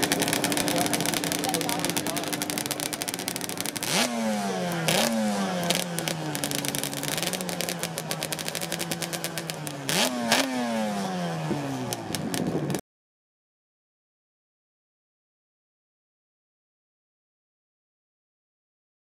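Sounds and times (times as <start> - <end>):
two-stroke motorcycle engine revving: 0.0 - 12.8.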